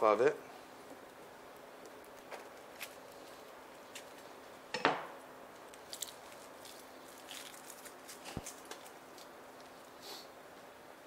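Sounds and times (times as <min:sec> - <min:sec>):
dry skin being peeled: 0:00.9 - 0:04.4, 0:05.5 - 0:10.0.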